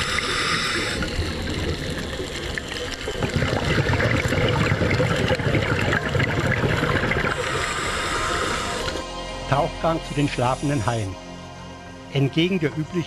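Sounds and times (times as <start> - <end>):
crackles: 0.0 - 9.1
underwater bubbling and gurgling: 0.0 - 9.1.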